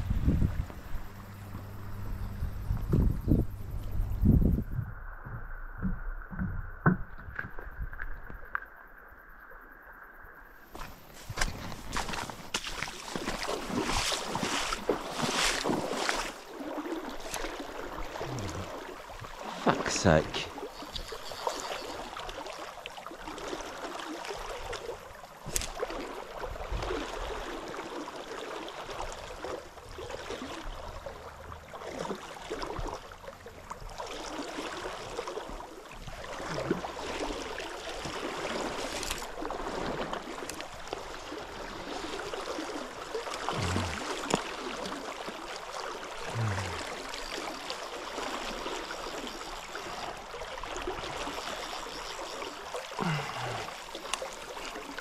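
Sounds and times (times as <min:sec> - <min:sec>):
river water rushing: 0:11.7 - 0:25.1, 0:34.0 - 0:55.0.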